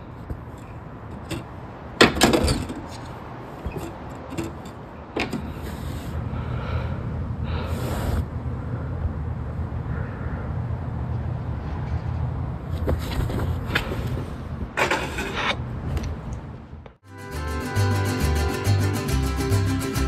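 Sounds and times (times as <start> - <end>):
steady low hum: 4.6 - 14.8.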